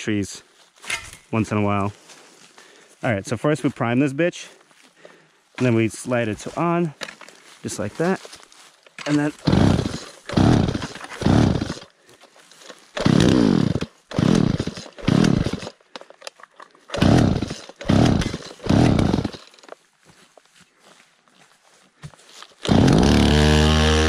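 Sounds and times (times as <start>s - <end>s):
recoil starter cord yanks: 8.8s - 11.9s, 12.6s - 19.8s, 22.6s - 24.0s
chainsaw engine cranking: 8.8s - 19.8s, 22.5s - 24.0s.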